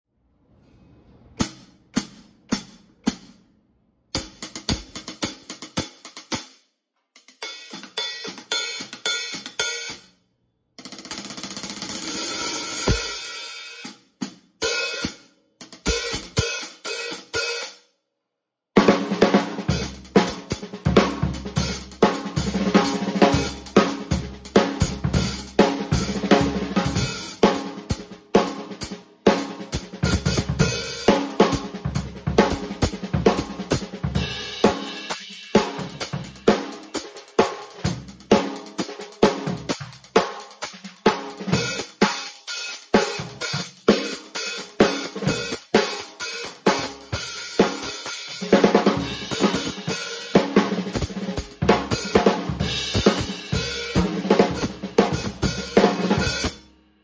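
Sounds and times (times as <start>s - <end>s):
snare drum: 4.2s - 6.5s, 10.9s - 13.4s, 15.0s - 16.8s, 18.8s - 56.6s
bass drum: 12.9s - 13.2s, 19.7s - 27.2s, 29.8s - 34.8s, 50.9s - 56.5s.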